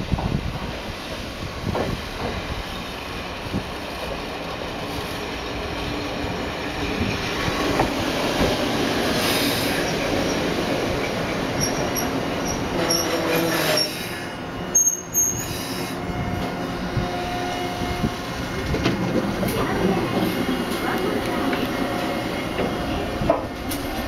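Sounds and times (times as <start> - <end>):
train wheels on rails: 0.0 - 24.0
high squeal: 11.6 - 16.0.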